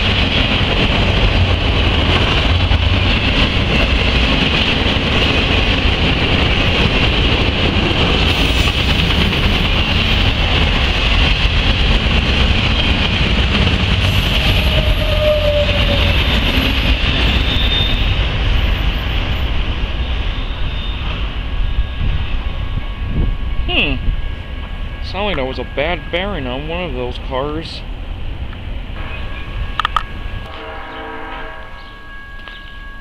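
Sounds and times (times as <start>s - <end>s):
train wheels rumbling on rails: 0.0s - 33.0s
high-pitched squeal: 14.0s - 19.6s, 20.2s - 26.9s.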